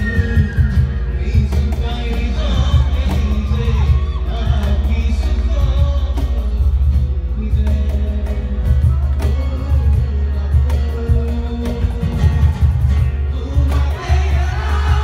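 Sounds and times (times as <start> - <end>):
flute melody: 0.0 - 6.0
cajon beat: 0.0 - 15.0
strummed acoustic guitars: 0.0 - 15.0.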